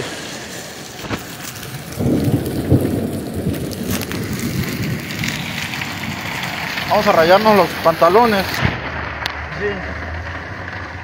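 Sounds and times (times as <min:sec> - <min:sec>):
heavy rain on pavement: 0:00.0 - 0:11.0
deep low rumble: 0:08.5 - 0:11.0.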